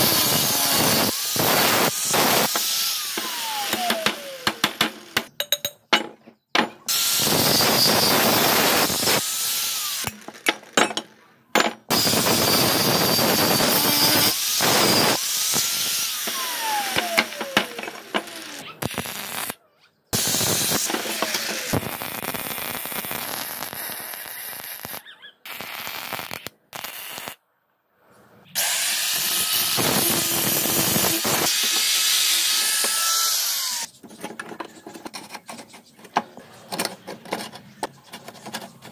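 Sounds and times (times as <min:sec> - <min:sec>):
arc welding crackle: 0:00.0 - 0:03.2, 0:11.9 - 0:19.6, 0:20.2 - 0:27.4, 0:28.7 - 0:33.9
angle grinder grinding steel: 0:00.0 - 0:05.2, 0:06.9 - 0:10.8, 0:11.9 - 0:19.5, 0:20.2 - 0:27.4, 0:28.6 - 0:33.9.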